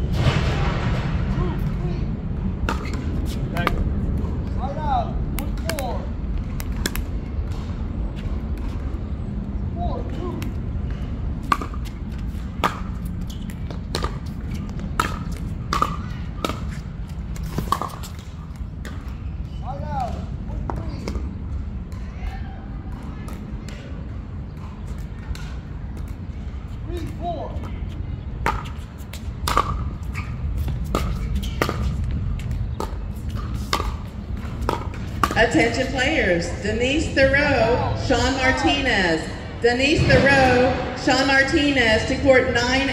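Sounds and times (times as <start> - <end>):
low rumble: 0.0 - 9.8, 34.2 - 42.9
low background hum: 0.0 - 42.9
ball bouncing on hard court: 2.6 - 3.8, 11.4 - 16.8, 30.6 - 35.9.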